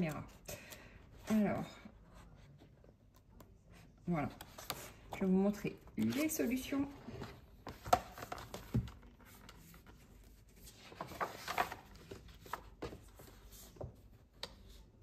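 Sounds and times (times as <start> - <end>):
paper pages rustling: 7.2 - 14.8.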